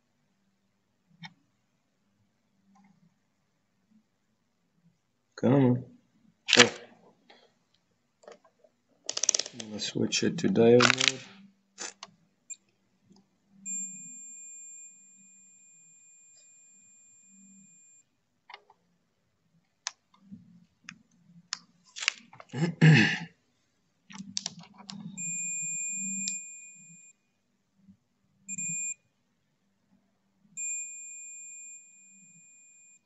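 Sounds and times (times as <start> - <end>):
multimeter beeping: 13.6 - 18.0, 25.0 - 27.2, 28.5 - 29.0, 30.6 - 33.0.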